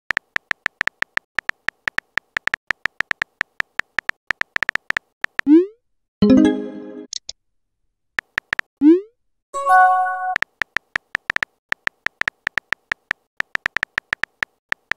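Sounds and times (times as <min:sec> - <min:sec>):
keyboard tap clicks: 0:08.2 - 0:08.7, 0:10.3 - 0:14.9.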